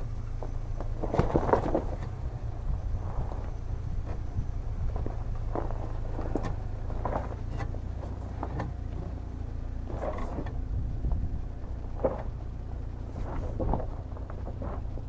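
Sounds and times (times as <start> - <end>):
car engine running at low revs: 0.0 - 15.0
tyres crunching over loose stones: 0.0 - 15.0.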